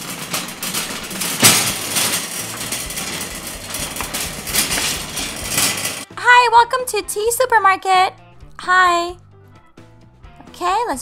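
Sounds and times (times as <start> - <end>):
toy cart wheels rattling: 0.0 - 6.1.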